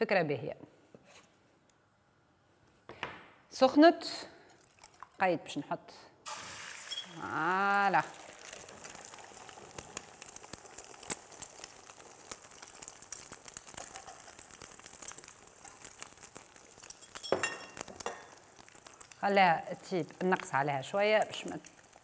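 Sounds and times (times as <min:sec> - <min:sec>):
eggs sizzling in hot oil: 0:04.4 - 0:05.2, 0:06.2 - 0:22.0.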